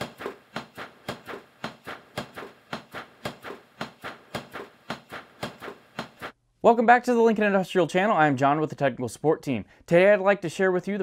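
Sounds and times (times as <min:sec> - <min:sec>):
sharp percussive clicks: 0:00.0 - 0:06.4.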